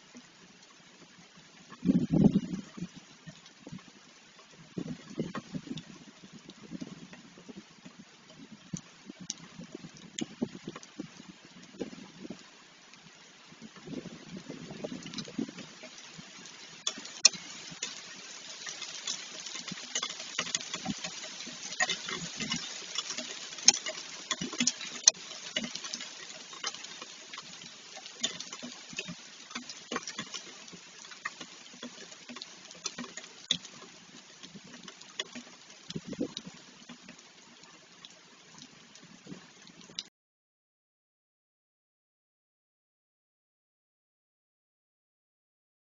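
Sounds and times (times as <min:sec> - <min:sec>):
hailstones ticking: 0:00.0 - 0:40.1
heavy rain hissing: 0:00.0 - 0:40.1.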